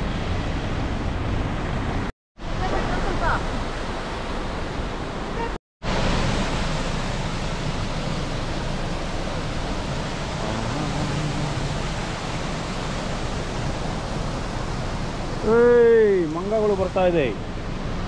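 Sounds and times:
steady rushing noise: 0.0s - 18.0s.

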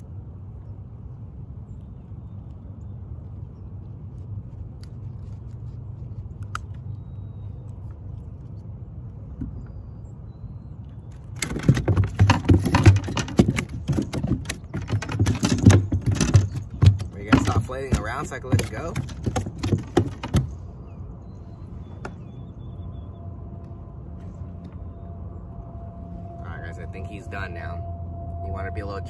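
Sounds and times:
low steady rumble: 0.0s - 29.0s
fish thrashing slaps and knocks: 11.4s - 20.6s.

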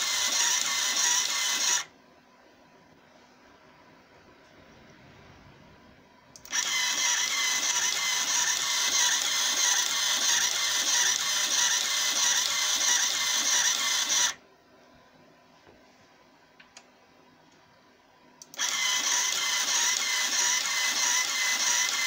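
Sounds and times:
thermal printer printing: 0.0s - 1.9s, 6.4s - 14.4s, 18.6s - 22.0s.

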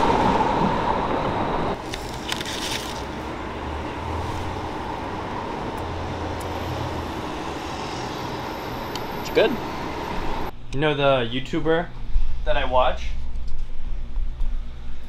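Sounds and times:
city street traffic: 0.0s - 10.6s.

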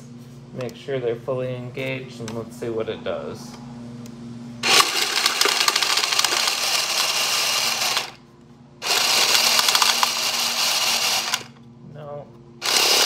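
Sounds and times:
card shuffler motors whirring: 3.4s - 11.8s, 12.5s - 13.0s
cards riffling rattle: 4.6s - 7.2s, 9.0s - 10.3s.

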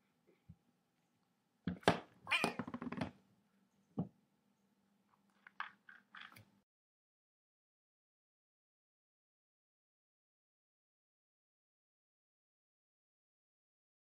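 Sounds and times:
cat meowing: 2.3s - 2.7s.

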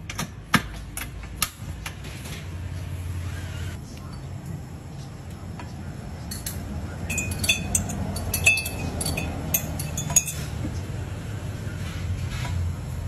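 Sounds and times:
kitchenware clinking: 6.3s - 10.6s.

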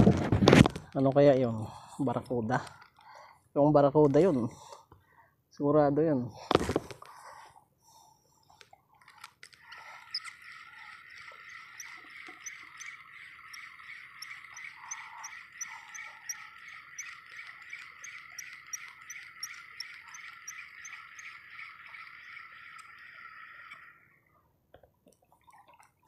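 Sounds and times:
reel ticking: 8.9s - 24.2s
fishing reel gear whirring: 9.0s - 24.3s.

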